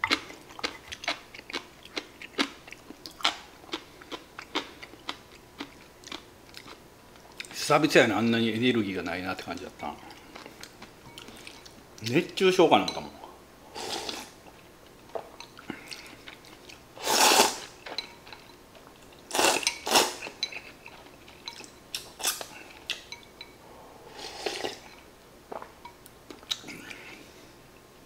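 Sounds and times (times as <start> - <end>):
chewing: 0.0 - 7.6, 14.1 - 16.8
noodles slurped: 17.0 - 17.7, 19.3 - 20.3.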